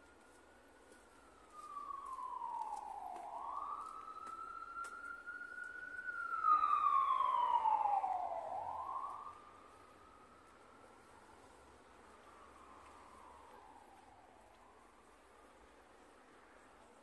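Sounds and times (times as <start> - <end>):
emergency vehicle siren wailing: 0.0 - 16.3.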